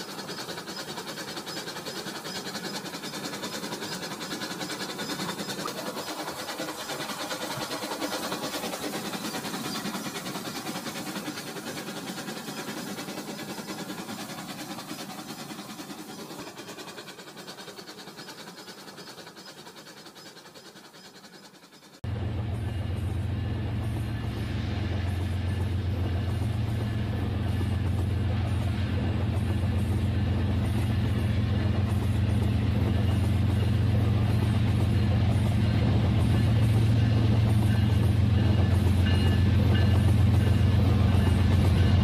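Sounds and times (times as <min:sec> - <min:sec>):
toy train motor whirring: 0:00.0 - 0:22.0
toy train wheels clicking on rails: 0:00.0 - 0:22.0, 0:26.8 - 0:42.0.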